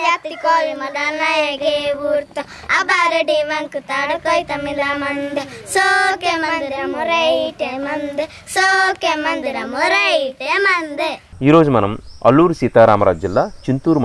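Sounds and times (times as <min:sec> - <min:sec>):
children singing: 0:00.0 - 0:11.2.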